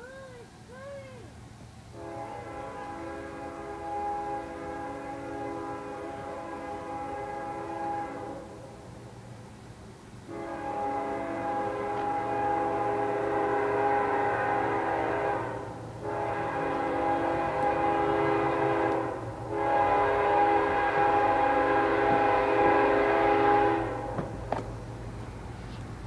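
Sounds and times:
low train rumble: 0.0 - 26.0
train air horn blasts: 1.9 - 8.7, 10.3 - 24.4.

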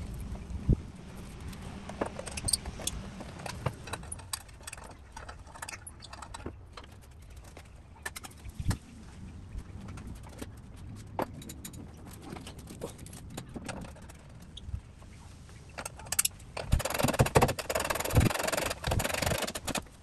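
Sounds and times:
metal clicks and knocks: 1.8 - 8.4, 15.8 - 20.0.

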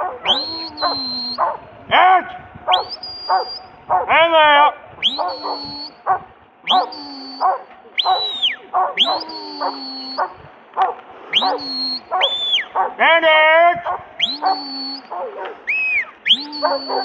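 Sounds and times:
dog barking: 0.0 - 1.7, 2.6 - 4.2, 5.2 - 13.0, 13.8 - 15.7, 16.6 - 17.0
loud rising shepherd's whistles: 0.2 - 1.6, 2.7 - 3.8, 5.0 - 10.4, 11.3 - 12.8, 14.2 - 17.0.

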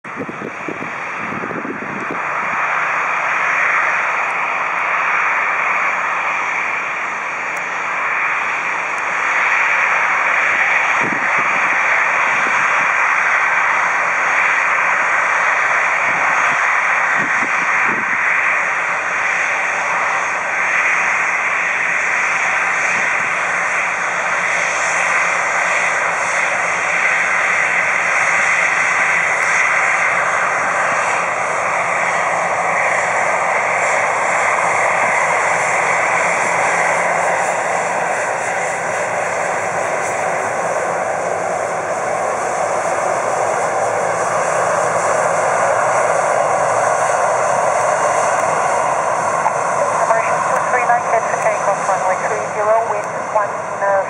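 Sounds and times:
jet engines at taxi power: 0.0 - 54.0.

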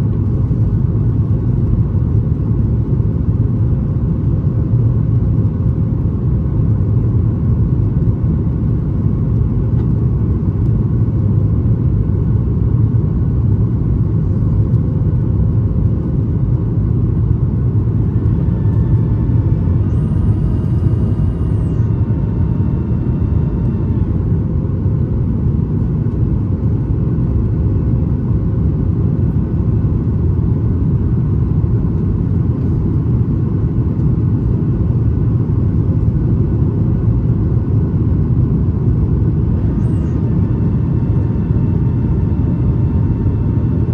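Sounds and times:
airplane cabin engine rumble: 0.0 - 43.9.

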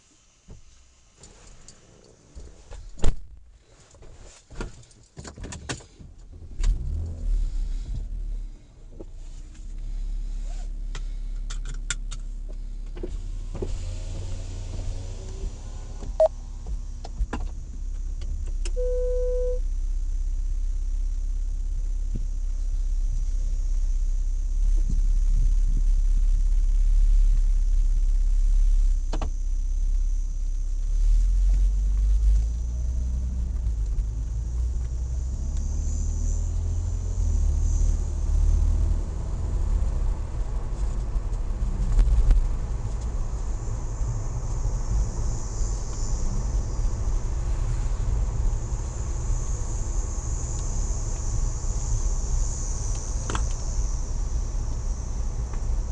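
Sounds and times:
car engine and road noise: 0.0 - 55.9
short beep: 18.8 - 19.6.

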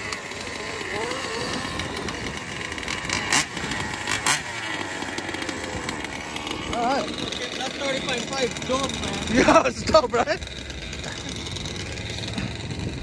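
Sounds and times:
small two-stroke engines revving: 0.0 - 13.0.

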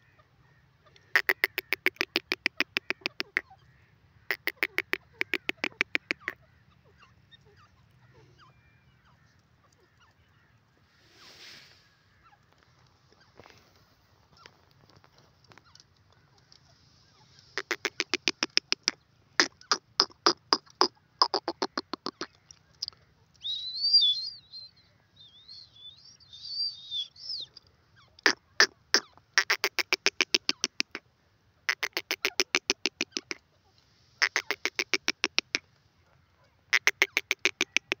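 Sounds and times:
bird harsh rapid calls: 1.1 - 9.2, 16.7 - 31.0, 31.7 - 33.4, 34.2 - 35.6, 36.7 - 38.0
bird squeaky wavering call: 23.4 - 28.1.

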